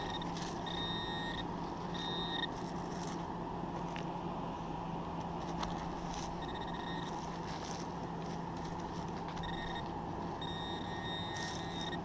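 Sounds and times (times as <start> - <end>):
high metal detector beep: 0.0 - 2.7, 6.4 - 7.3, 9.3 - 12.0
steady background noise: 0.0 - 12.0.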